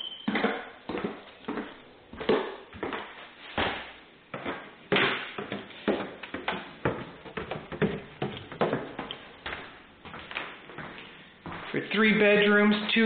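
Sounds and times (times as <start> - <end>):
footsteps going down stairs: 0.0 - 13.0.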